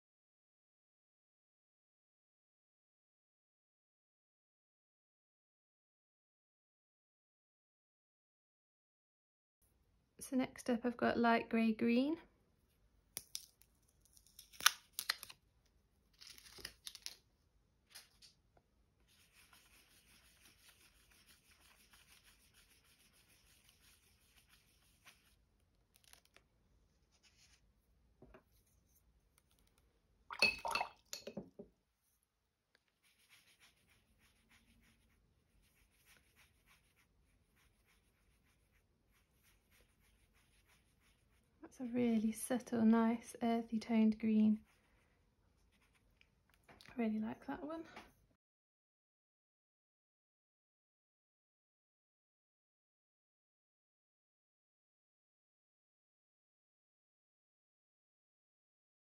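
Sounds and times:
paper wrapper tearing: 0:13.2 - 0:15.4, 0:16.1 - 0:17.2, 0:23.5 - 0:26.4
paper rustle: 0:16.1 - 0:17.2, 0:19.1 - 0:26.4
pastel scratching on paper: 0:19.0 - 0:25.4, 0:26.0 - 0:27.7, 0:32.9 - 0:41.5, 0:45.6 - 0:46.1
wet paintbrush strokes: 0:19.0 - 0:29.9, 0:32.0 - 0:41.6, 0:44.6 - 0:46.4.

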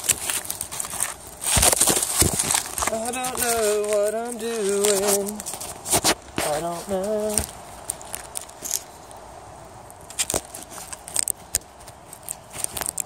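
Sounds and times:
camera handling noise: 0:00.0 - 0:06.6
crackles and rustles of leaves: 0:00.0 - 0:13.0.

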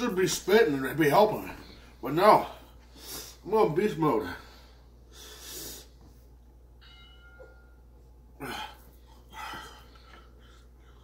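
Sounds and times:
sharp hissing breath: 0:05.1 - 0:06.0.

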